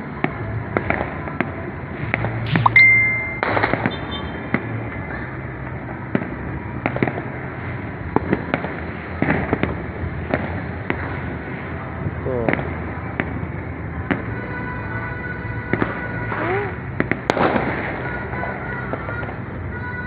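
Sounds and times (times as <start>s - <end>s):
distant fireworks bangs and pops: 0.1s - 2.6s, 3.4s - 14.6s, 15.6s - 19.9s
high firework whistle: 15.7s - 16.8s.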